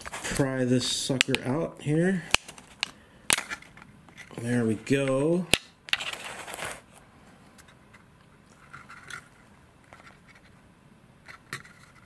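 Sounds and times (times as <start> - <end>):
handling clicks and scrapes: 2.3 - 7.0, 7.6 - 12.0.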